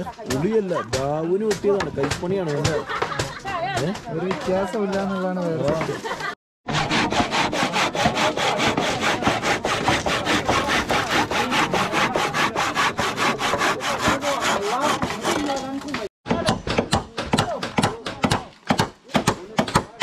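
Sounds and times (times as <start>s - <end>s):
hand saw cutting timber: 6.7s - 20.0s.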